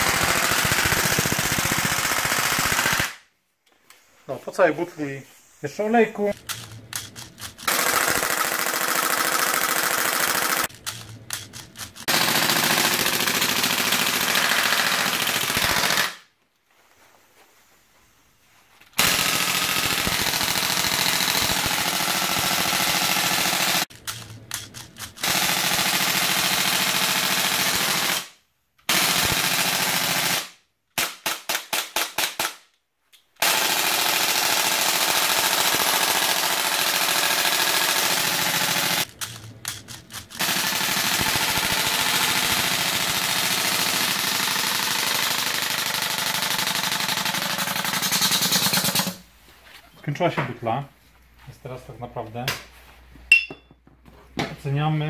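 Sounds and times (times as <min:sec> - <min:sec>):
airsoft rifle automatic fire: 0:00.0 - 0:03.2, 0:07.6 - 0:10.7, 0:12.0 - 0:16.2, 0:19.0 - 0:23.9, 0:25.2 - 0:28.3, 0:28.9 - 0:32.6, 0:33.4 - 0:39.1, 0:40.3 - 0:49.2.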